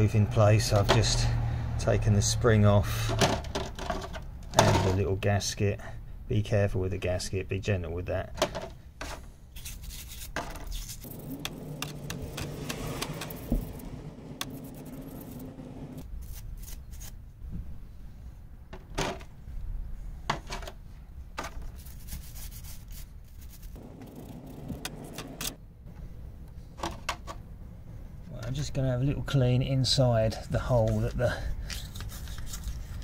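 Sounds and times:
toothbrush scrubbing metal part: 9.6s - 17.1s, 23.4s - 25.6s.

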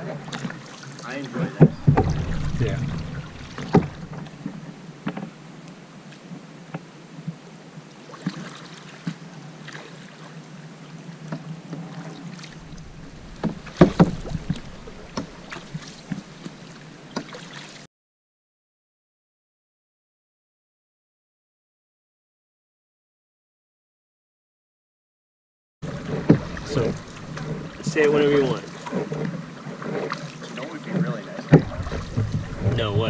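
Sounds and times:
paddle strokes and splashes: 0.0s - 17.9s, 25.8s - 33.0s
light knocks on canoe: 1.5s - 5.3s, 12.6s - 17.4s, 25.9s - 33.0s.

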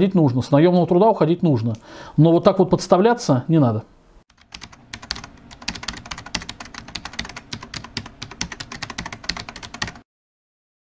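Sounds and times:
keyboard typing: 4.3s - 10.0s.

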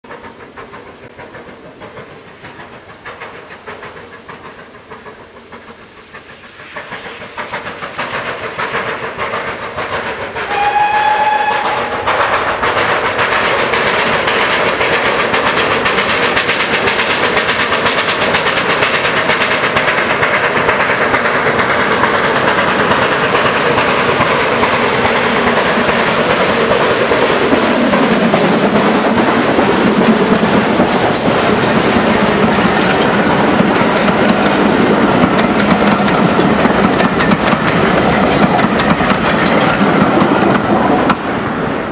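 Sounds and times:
steam locomotive exhaust beats: 0.0s - 41.9s
short steam whistle: 10.5s - 12.1s.

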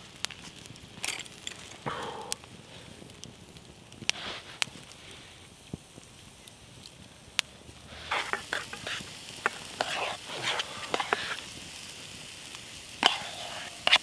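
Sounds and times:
campfire hiss: 0.0s - 14.0s
mug scraping on metal plate: 8.0s - 11.4s.

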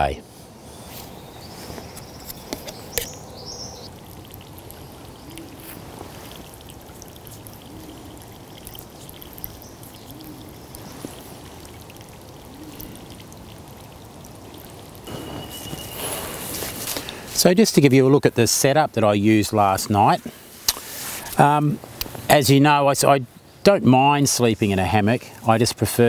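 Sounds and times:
forest hiss: 0.0s - 26.0s
bird chirps: 0.7s - 3.9s, 15.1s - 17.0s
faint small calls: 0.9s - 16.8s.

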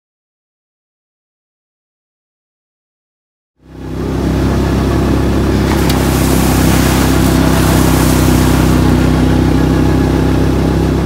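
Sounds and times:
engine running steadily: 3.6s - 11.0s
loud rush of wind or surf: 5.6s - 9.0s.

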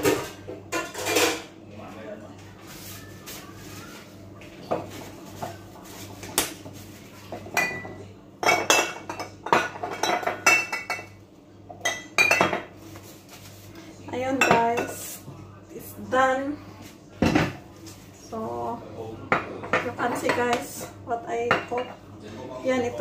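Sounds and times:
kitchenware clattering: 0.0s - 1.6s, 4.6s - 13.5s, 14.1s - 15.2s, 17.2s - 17.7s, 19.3s - 22.0s.

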